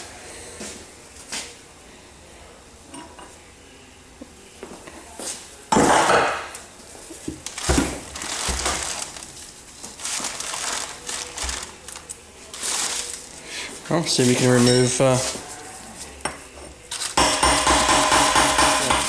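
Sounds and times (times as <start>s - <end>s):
hammer tapping on metal: 17.2s - 19.0s.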